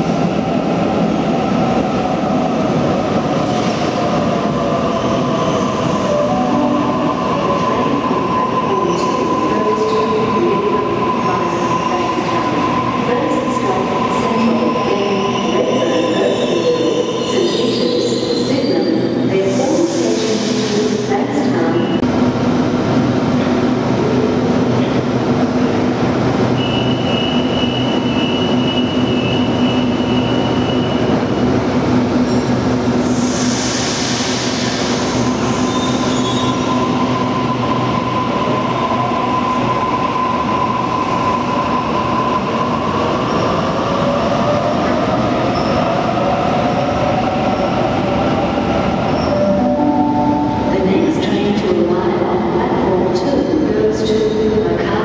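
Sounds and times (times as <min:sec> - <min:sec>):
high squeal: 0:26.6 - 0:31.1, 0:35.2 - 0:39.6
electric train humming: 0:46.1 - 0:52.1.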